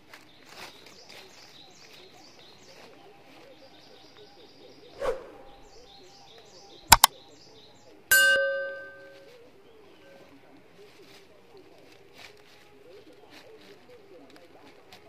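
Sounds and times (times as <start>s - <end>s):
dry leaves rustling: 0.0s - 4.2s, 9.1s - 15.0s
small birds chirping: 0.0s - 12.0s
mouse-click sound effects: 6.9s - 7.1s
loud bell ding: 8.1s - 9.3s.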